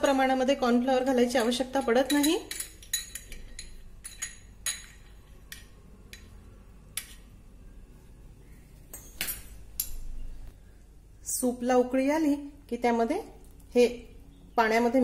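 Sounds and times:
spoon clinking against glass bowl: 1.3s - 6.4s.

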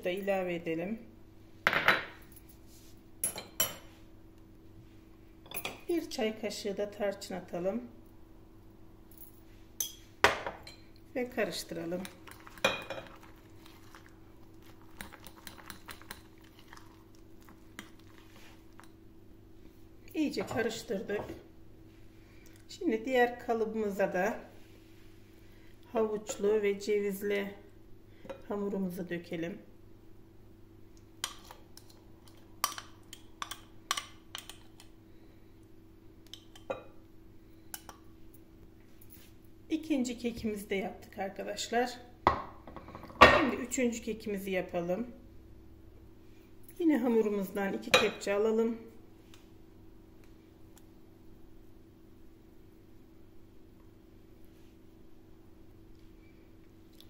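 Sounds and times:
faint steady hum: 0.0s - 57.0s
spoon stirring batter: 11.4s - 19.0s.

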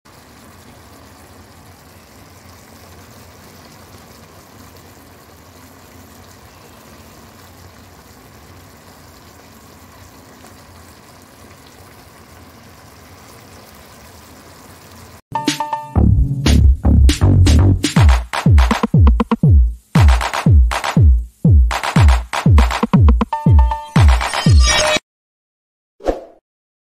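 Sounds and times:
sauce simmering in a pan: 0.1s - 15.2s.

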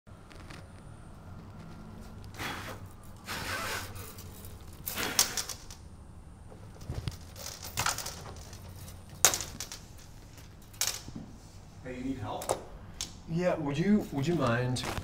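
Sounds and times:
marker scraping against wall: 1.5s - 5.6s.

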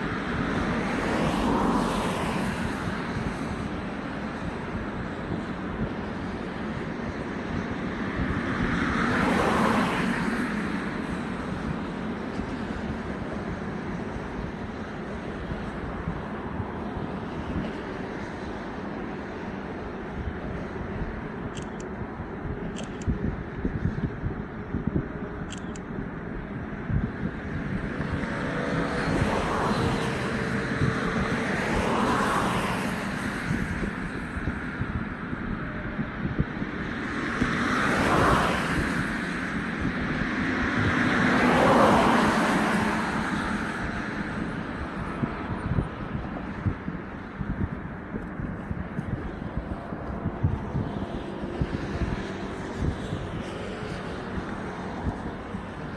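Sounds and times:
traffic hum: 0.0s - 55.9s
wind rumble on microphone: 0.0s - 55.9s
vehicle passing close by: 26.9s - 35.1s, 36.3s - 47.6s.

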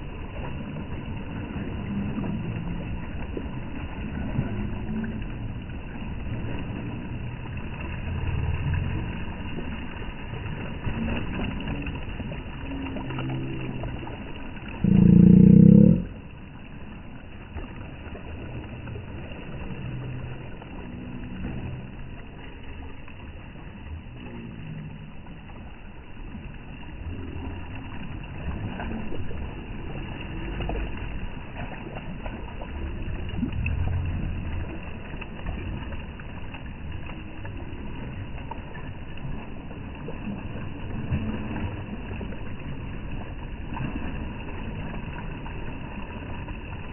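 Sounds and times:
loud low pitched sound: 0.0s - 16.6s, 17.8s - 25.7s, 31.9s - 36.3s
sea noise: 0.0s - 46.9s
wind: 0.0s - 46.9s.

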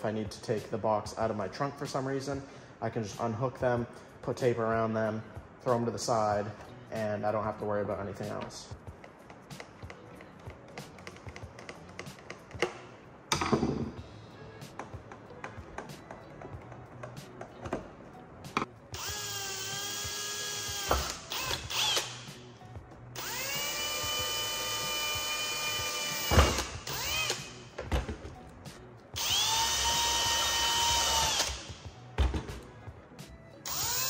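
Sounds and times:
parts clicking and knocking: 9.0s - 14.0s
cordless drill whining: 19.0s - 22.2s, 23.2s - 27.6s, 29.2s - 31.7s, 33.7s - 34.0s.

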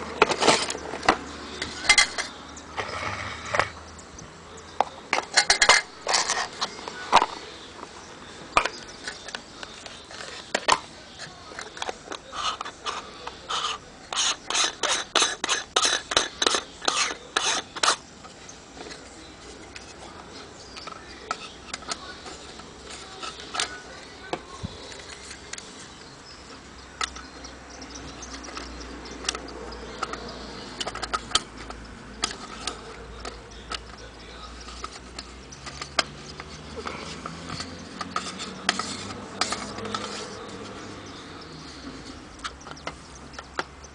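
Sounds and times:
camera accessories clicking and rattling: 8.5s - 10.8s, 27.0s - 41.1s.

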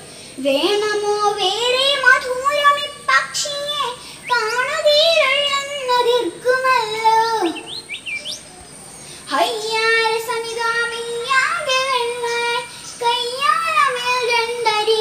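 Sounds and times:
girl chanting a poem: 0.1s - 7.8s, 9.0s - 15.0s
quick rising chirps: 7.2s - 9.2s.

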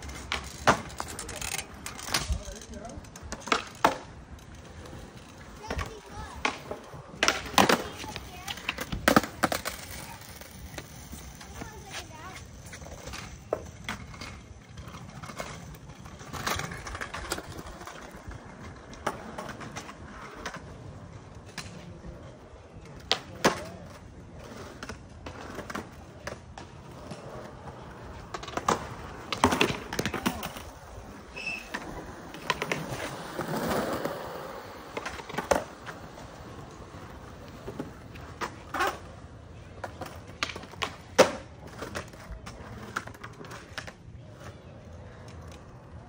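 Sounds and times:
skateboard wheels rolling on concrete: 0.0s - 46.0s
skateboards popping and landing: 0.0s - 46.0s.

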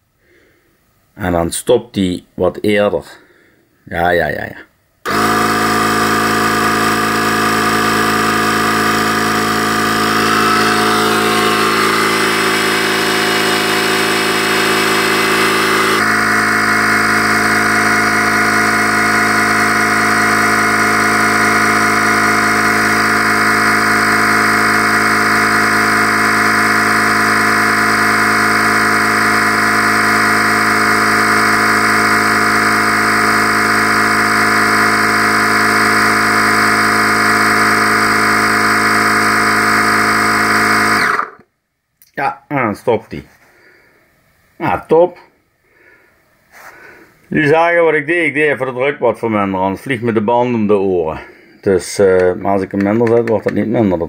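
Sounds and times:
cordless tyre compressor running: 5.0s - 41.5s.

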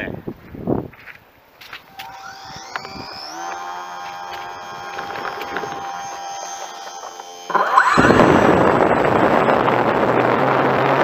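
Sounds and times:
model airplane motor whine: 1.7s - 11.0s
propeller rushing noise: 1.8s - 11.0s.

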